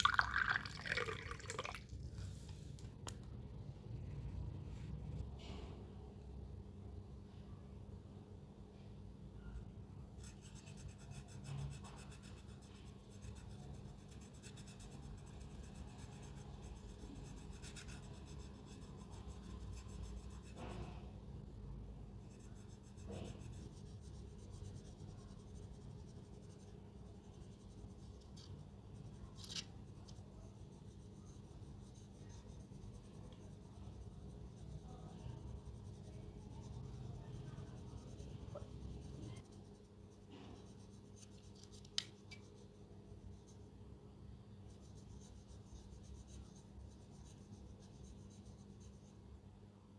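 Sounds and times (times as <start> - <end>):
faint scratching and rubbing: 9.4 - 21.2, 22.0 - 43.8, 44.5 - 49.4.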